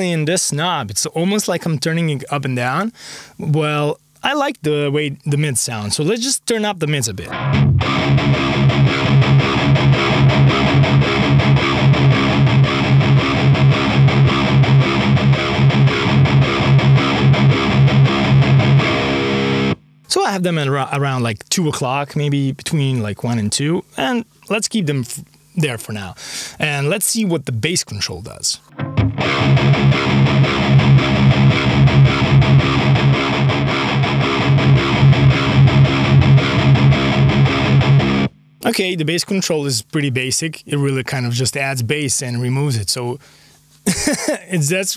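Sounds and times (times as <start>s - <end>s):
distorted electric guitar riff: 7.2s - 20.1s, 28.6s - 38.7s.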